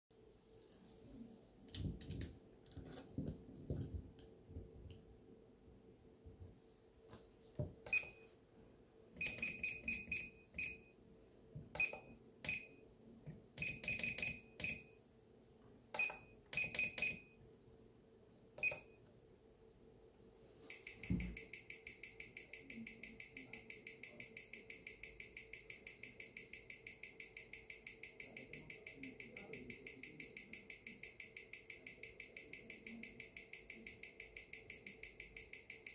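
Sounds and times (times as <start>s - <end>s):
short electronic beeps: 7.9s - 8.2s, 9.2s - 10.9s, 11.8s - 12.8s, 13.6s - 15.0s, 16.0s - 17.4s, 18.6s - 19.0s
amplified watch ticking: 9.2s - 10.9s, 11.8s - 12.8s, 13.6s - 14.9s, 16.0s - 17.3s, 20.7s - 35.9s.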